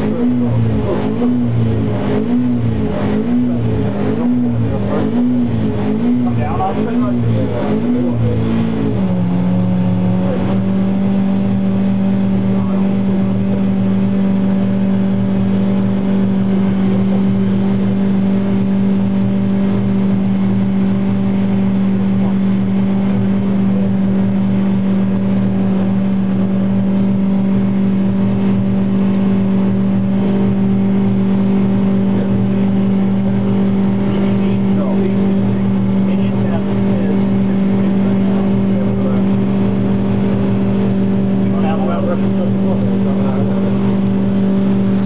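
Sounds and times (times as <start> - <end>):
motorcycle engine running steadily: 0.0 - 45.0.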